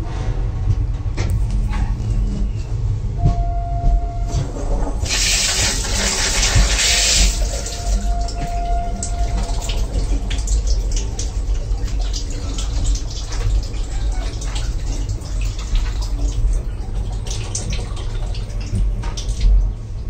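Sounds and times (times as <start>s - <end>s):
train rumble: 0.0s - 20.0s
toilet flush water gushing: 4.9s - 20.0s.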